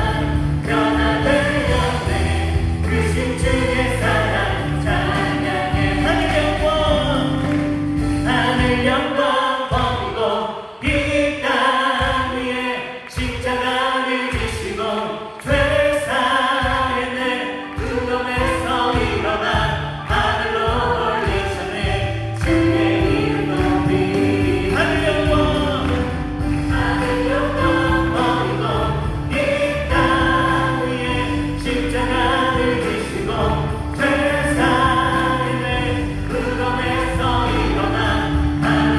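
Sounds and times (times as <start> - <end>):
women singing worship song: 0.0 - 7.4, 8.3 - 38.9
bass guitar: 0.0 - 8.9, 21.8 - 38.9
drums: 0.0 - 9.1, 9.7 - 13.6, 15.4 - 38.9
keyboard: 0.0 - 13.1, 13.8 - 38.9.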